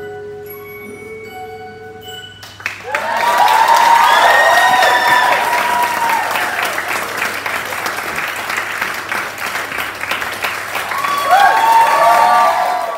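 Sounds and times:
audience applauding: 0:02.4 - 0:12.9
whoops and cheers: 0:02.8 - 0:06.9, 0:10.8 - 0:12.9.

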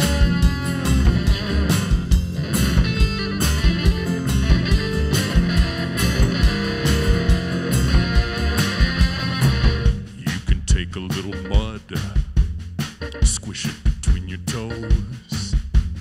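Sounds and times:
acoustic guitar: 0:00.0 - 0:10.0
electric guitar: 0:00.0 - 0:10.0
drums keeping a steady beat: 0:00.0 - 0:16.0
upright bass: 0:00.0 - 0:16.0.

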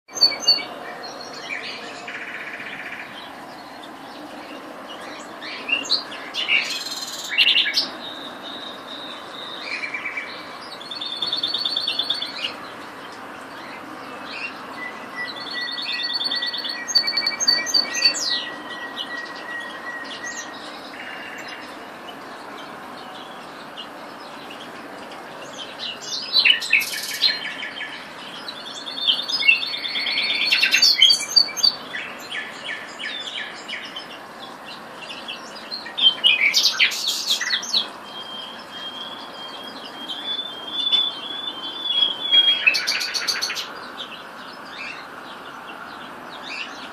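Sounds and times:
nightingale singing: 0:00.1 - 0:46.9.

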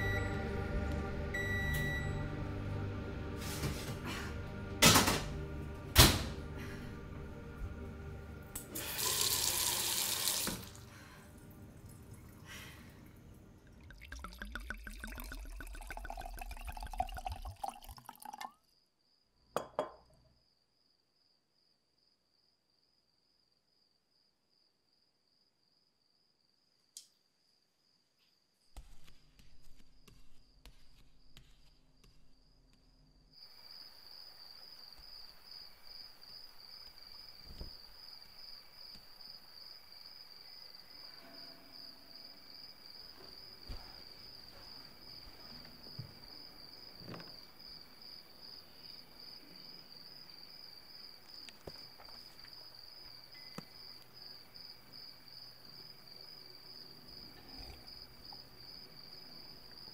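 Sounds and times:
low hum: 0:00.0 - 0:08.8
crickets chirping: 0:07.0 - 0:28.7, 0:31.9 - 0:59.9.

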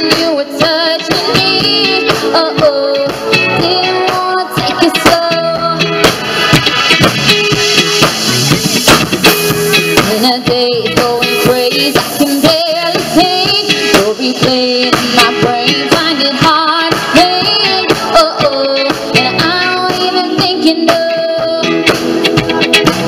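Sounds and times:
woman singing: 0:00.0 - 0:06.1, 0:10.0 - 0:22.1
drum kit beat: 0:00.0 - 0:23.0
pop rock band playing: 0:00.0 - 0:23.0
electric bass: 0:03.0 - 0:23.0.

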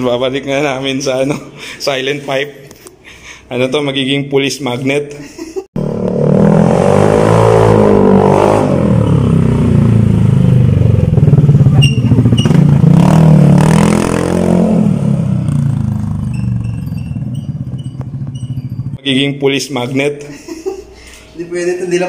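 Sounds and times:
scooter engine revving: 0:05.8 - 0:19.0.

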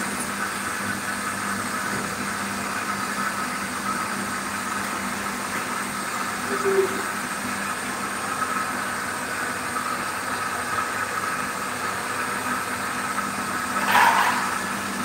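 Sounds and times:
pump motor humming: 0:00.0 - 0:15.0
high steady tone: 0:06.5 - 0:07.1.

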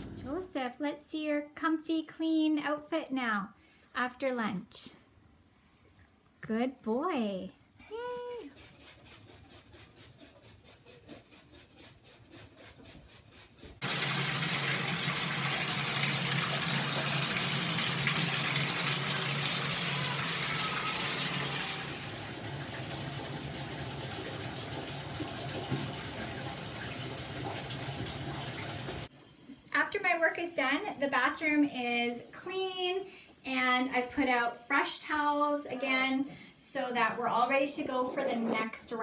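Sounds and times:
bathtub faucet running: 0:13.7 - 0:29.1.

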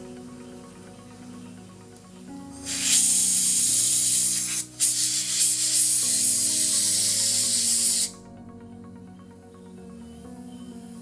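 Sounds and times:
air blow gun hissing: 0:02.6 - 0:08.2.

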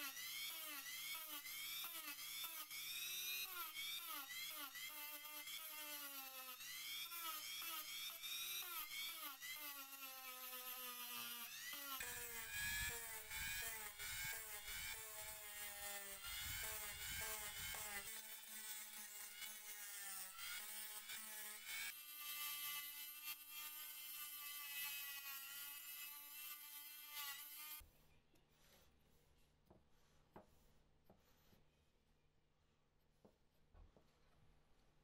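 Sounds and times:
rotary tool sanding metal: 0:00.0 - 0:27.8.

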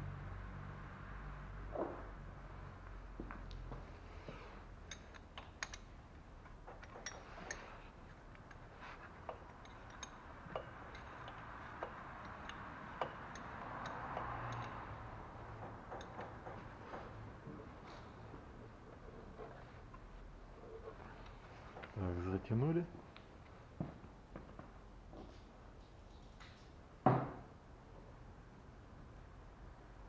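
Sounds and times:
light clicks and taps of tools: 0:02.8 - 0:18.4.

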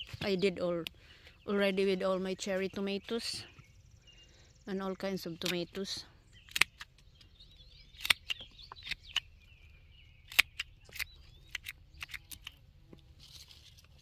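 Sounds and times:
birds chirping: 0:00.0 - 0:14.0
pruning shears snipping: 0:05.3 - 0:07.1, 0:08.0 - 0:09.3, 0:10.3 - 0:12.6.

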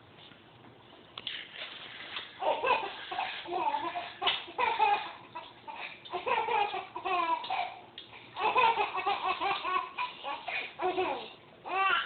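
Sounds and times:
baby giggling: 0:02.4 - 0:07.8, 0:08.4 - 0:12.0.

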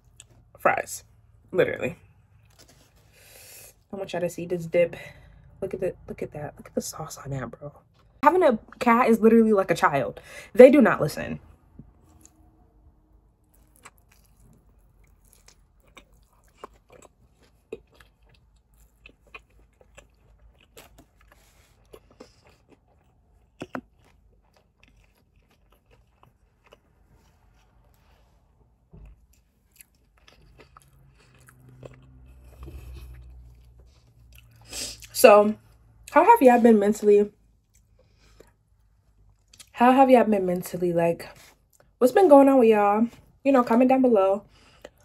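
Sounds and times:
chewing and crunching: 0:02.2 - 0:03.2, 0:11.9 - 0:12.6, 0:13.3 - 0:36.0, 0:37.5 - 0:39.8, 0:44.5 - 0:45.0.

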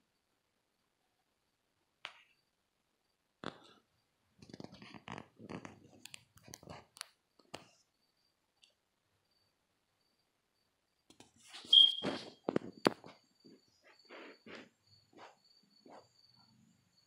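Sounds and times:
scratchy clicking and rustling: 0:04.4 - 0:07.7.

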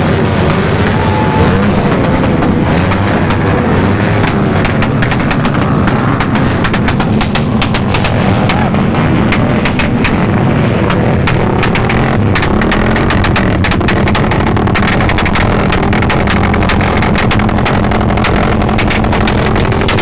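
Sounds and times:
motorcycles revving: 0:00.0 - 0:20.0
backfire pops: 0:04.1 - 0:20.0.

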